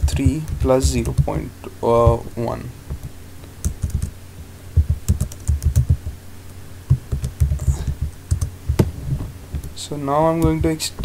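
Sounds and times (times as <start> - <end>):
keyboard typing: 0.0 - 2.3, 2.9 - 4.1, 4.8 - 6.2, 6.9 - 8.9
steady low hum: 0.0 - 11.0.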